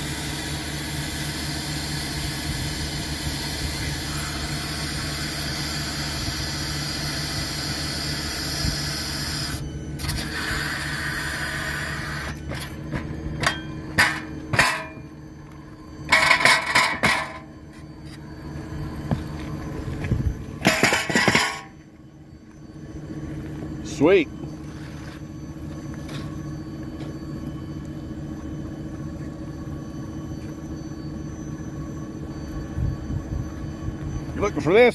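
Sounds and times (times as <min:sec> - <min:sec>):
hydraulic machine humming: 0:00.0 - 0:34.9
metal scraping: 0:12.3 - 0:18.4, 0:19.1 - 0:21.9
metallic clanks: 0:12.5 - 0:15.0, 0:16.1 - 0:17.5, 0:20.6 - 0:21.8.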